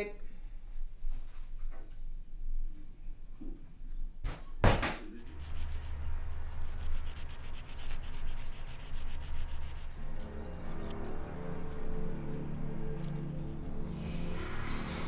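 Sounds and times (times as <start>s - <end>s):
chalk scraping on rough pavement: 5.2s - 11.1s.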